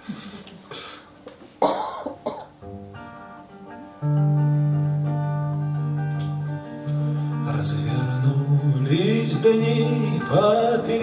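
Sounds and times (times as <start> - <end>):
acoustic guitar playing: 2.0 - 11.0.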